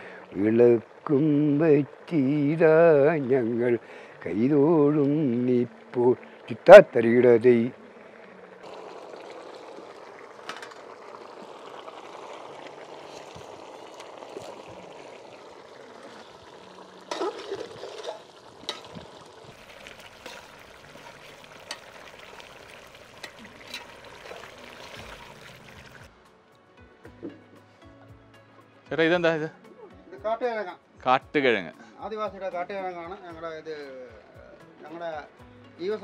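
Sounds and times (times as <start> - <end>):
curry bubbling and sizzling: 0.0 - 26.2.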